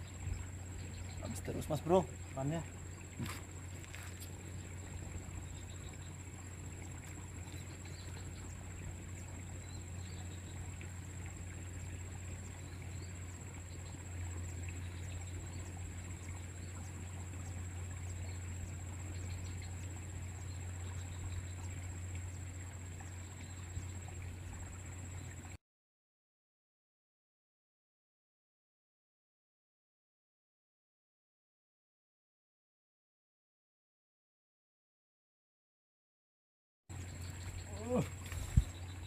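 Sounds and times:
faint chirps: 0:00.0 - 0:25.6, 0:36.9 - 0:39.0
low hum: 0:00.0 - 0:25.6.

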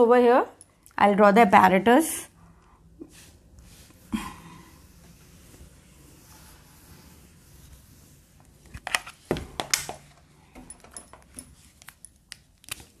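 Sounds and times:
duster scrubbing whiteboard: 0:03.0 - 0:08.8.

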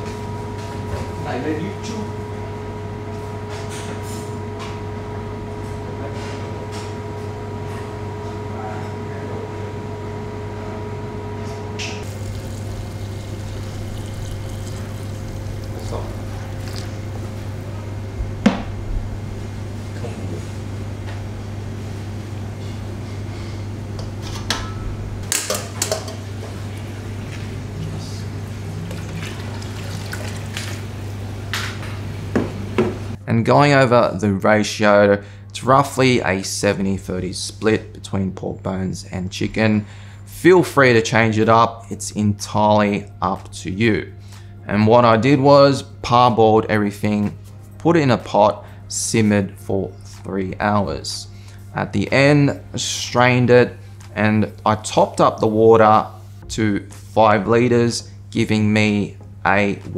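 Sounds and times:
machine hum with whine: 0:00.0 - 0:33.3
liquid trickling and sloshing: 0:12.0 - 0:17.3, 0:28.8 - 0:31.0.

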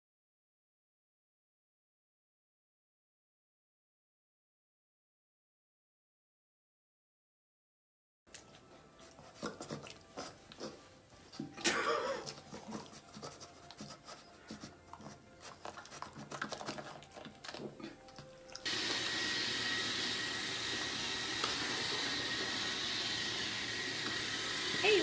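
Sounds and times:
appliance motor whirring: 0:18.6 - 0:25.0.

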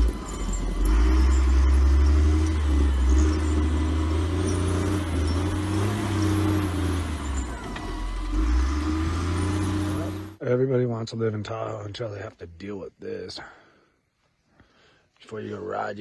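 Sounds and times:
diesel engine rumbling: 0:00.0 - 0:12.3.

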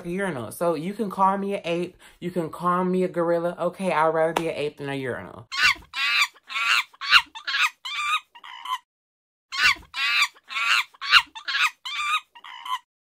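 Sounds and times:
high-pitched animal calls: 0:05.5 - 0:08.9, 0:09.5 - 0:12.9.

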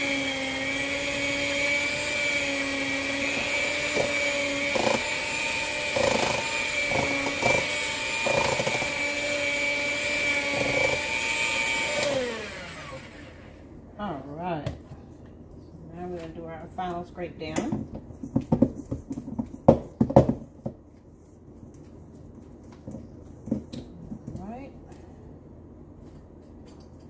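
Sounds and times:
electric hand mixer whining: 0:00.0 - 0:13.6.

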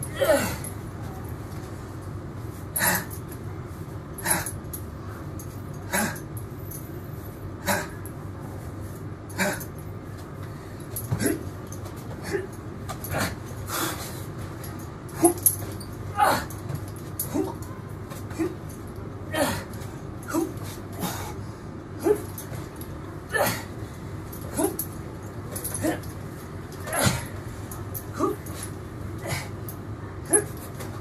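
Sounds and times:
man breathing hard: 0:20.5 - 0:22.3.

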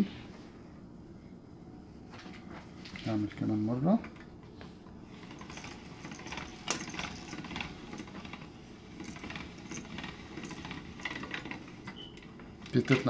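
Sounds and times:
pasta machine cutter rattling: 0:05.1 - 0:13.0.

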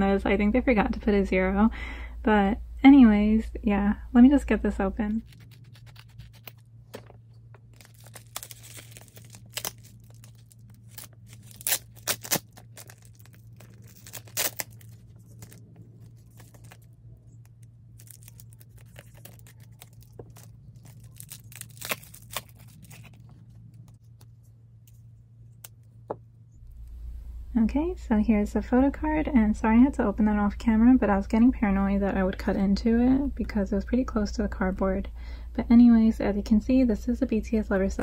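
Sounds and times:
low steady hum: 0:00.0 - 0:38.0
package being torn open: 0:05.2 - 0:06.6, 0:07.6 - 0:23.4.

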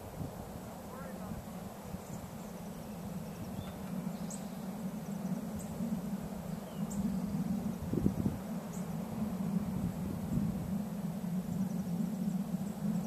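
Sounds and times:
faint insect ticking: 0:00.0 - 0:13.0
steady low hum: 0:00.0 - 0:13.0
bird chirps: 0:01.8 - 0:05.8, 0:06.5 - 0:07.4.

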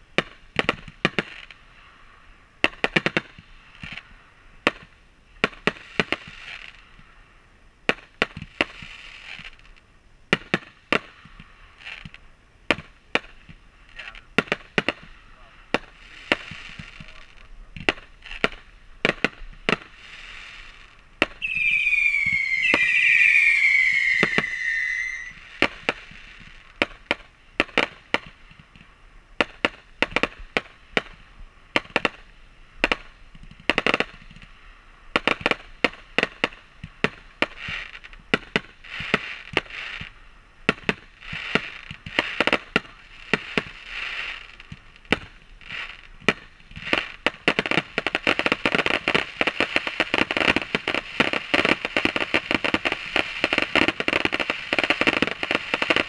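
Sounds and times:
fireworks bangs and crackling: 0:00.1 - 0:01.6, 0:10.3 - 0:56.0
whistling fireworks: 0:19.2 - 0:26.4, 0:43.3 - 0:56.0.

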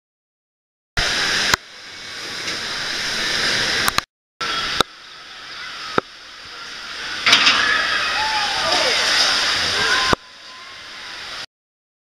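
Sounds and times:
water rushing down slide: 0:01.0 - 0:11.5.

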